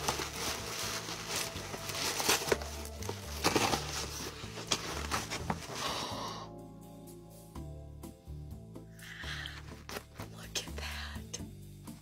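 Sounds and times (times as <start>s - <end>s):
paper packaging crinkling: 0.0s - 5.9s.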